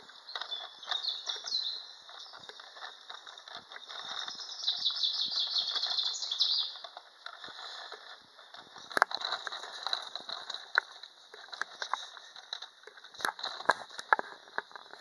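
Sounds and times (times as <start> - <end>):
songbirds chirping and trilling: 0.0 - 8.1
soft footsteps on a path: 0.0 - 15.0.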